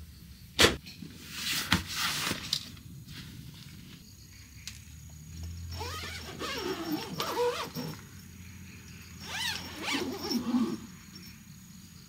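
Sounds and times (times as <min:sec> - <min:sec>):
fabric mesh rustling: 0:09.2 - 0:10.8.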